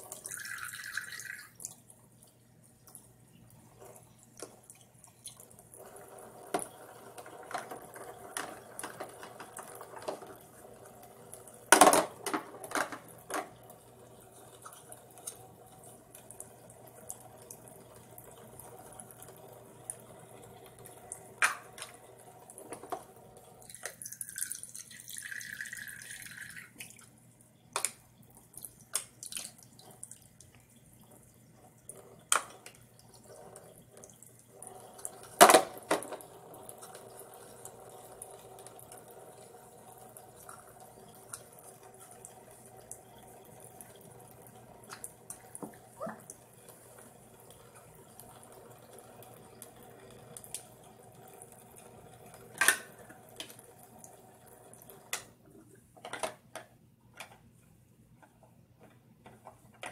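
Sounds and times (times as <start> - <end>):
water trickling from faucet: 0.0 - 11.7, 13.0 - 27.5, 28.2 - 55.2
plastic cups knocking on sink: 11.7 - 13.5.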